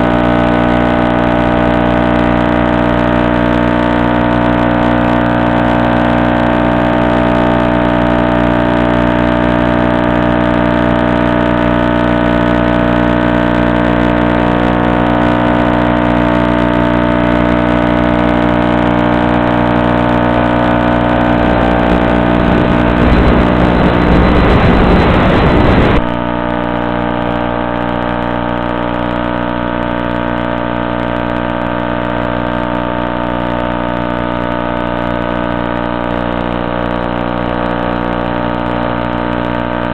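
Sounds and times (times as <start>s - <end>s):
loud steady buzz: 0.0s - 39.9s
rush of noise: 11.5s - 30.6s.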